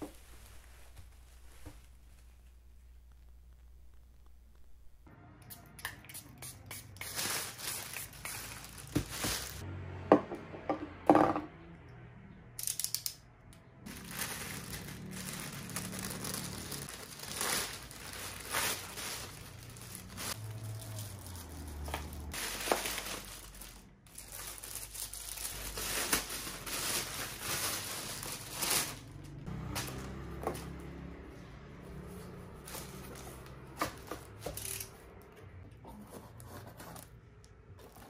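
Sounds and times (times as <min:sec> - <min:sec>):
plastic mailer bags crinkling: 0:07.0 - 0:09.6, 0:13.9 - 0:30.2.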